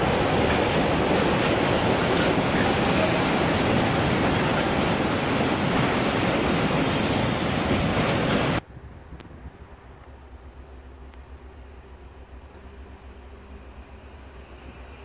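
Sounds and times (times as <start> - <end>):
train wheels on rails: 0.0 - 8.6
high-pitched wheel squeal: 3.3 - 8.6.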